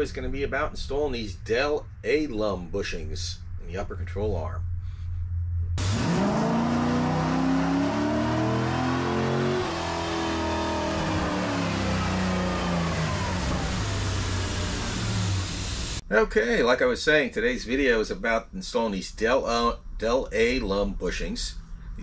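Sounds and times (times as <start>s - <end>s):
car engine accelerating: 5.8s - 16.0s.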